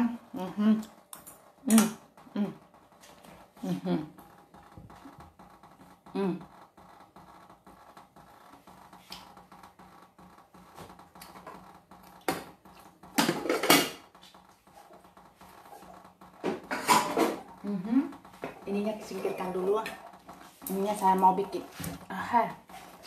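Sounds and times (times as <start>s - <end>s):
utensils knocking and scraping: 11.2s - 23.0s
crockery and metal clatter: 12.3s - 14.2s, 16.4s - 17.6s.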